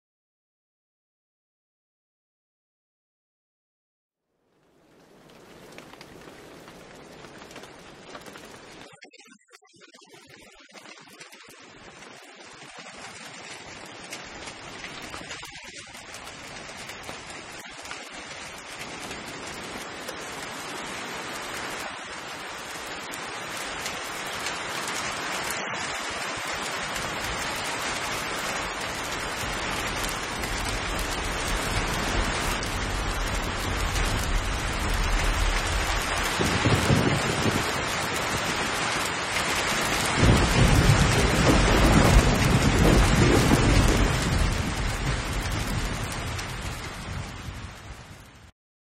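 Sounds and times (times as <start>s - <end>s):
rain falling: 4.4s - 48.5s
thunder rumbling: 11.8s - 48.5s.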